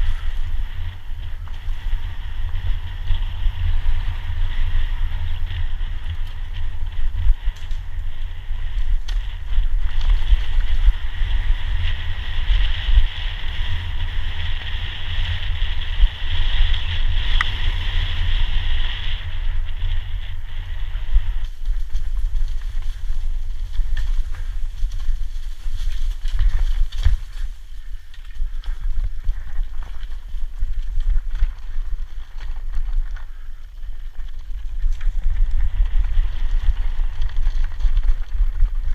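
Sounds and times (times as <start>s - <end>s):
bike rattling over rocks: 0.0s - 38.9s
wind buffeting microphone: 0.0s - 38.9s.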